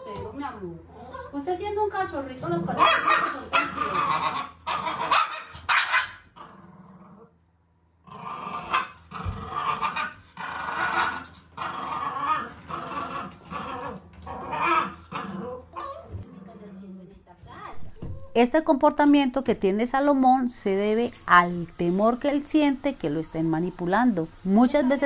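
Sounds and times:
puppy growling and barking: 2.4 - 7.4, 8.0 - 16.8.

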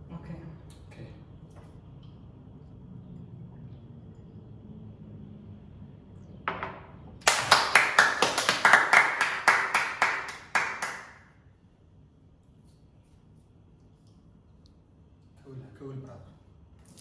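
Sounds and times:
rhythmic hand claps: 7.2 - 11.3.

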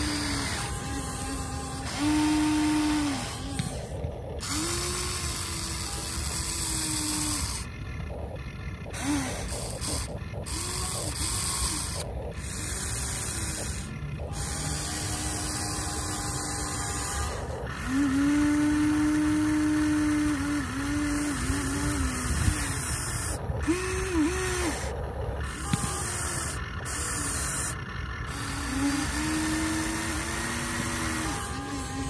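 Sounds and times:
electric motors whining: 0.0 - 32.0.

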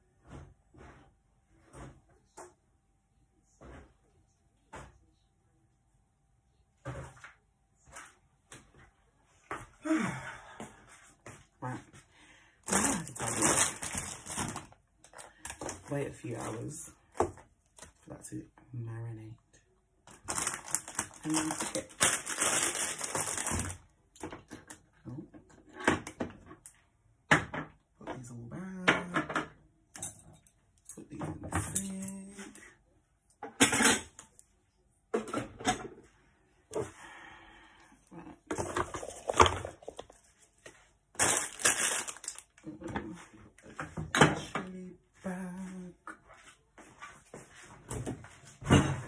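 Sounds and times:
plastic bag rustling: 12.7 - 14.8, 20.1 - 23.8, 38.6 - 42.6
plastic packaging crinkling: 12.7 - 14.8, 20.1 - 23.8, 41.2 - 42.6.

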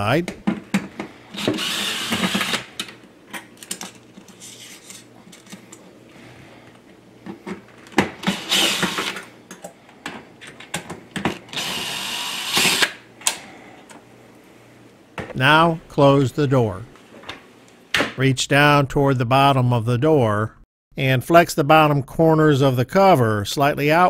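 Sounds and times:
cordless drill motor running: 1.3 - 2.8, 8.2 - 9.2, 11.5 - 13.0.

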